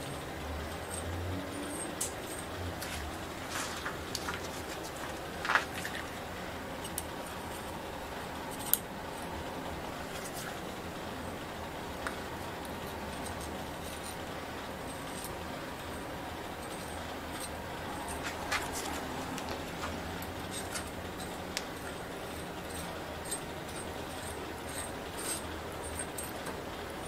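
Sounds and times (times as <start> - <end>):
razor scraper scraping handlebar: 12.0 - 26.4.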